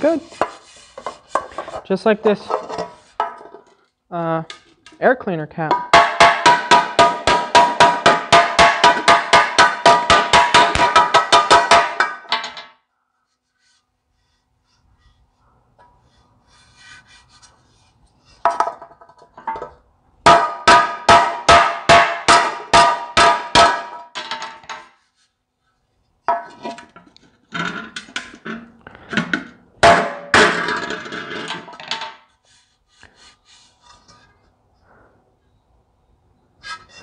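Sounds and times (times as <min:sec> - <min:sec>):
hammer striking metal: 0:05.7 - 0:12.6, 0:20.3 - 0:24.8.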